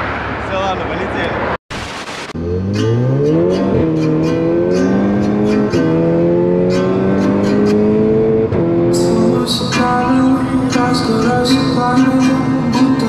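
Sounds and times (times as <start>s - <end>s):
car engine accelerating through gears: 2.4s - 9.7s.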